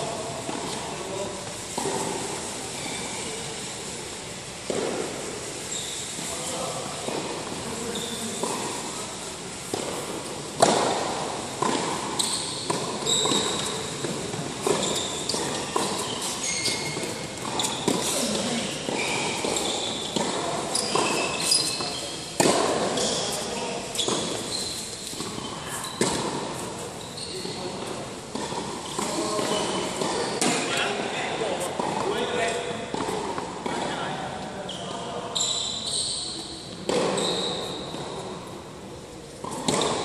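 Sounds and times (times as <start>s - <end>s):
tennis ball bouncing: 4.7s - 5.2s, 7.0s - 7.6s, 9.6s - 30.8s, 31.6s - 33.9s, 36.3s - 38.6s, 39.3s - 40.0s
sneakers squeaking on court: 5.7s - 8.7s, 10.6s - 33.8s, 34.5s - 38.5s
tennis racket striking ball: 9.6s - 26.8s, 27.4s - 30.8s, 36.8s - 38.4s, 39.4s - 40.0s.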